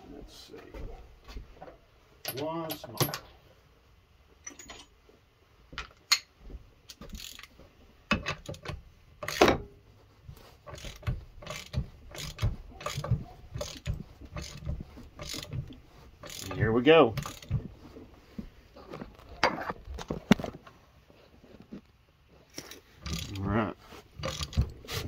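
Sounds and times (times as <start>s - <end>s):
ratchet wrench clicking: 6.9s - 7.5s, 8.2s - 9.5s, 10.7s - 16.6s, 17.2s - 17.6s, 23.0s - 23.4s, 24.2s - 24.7s.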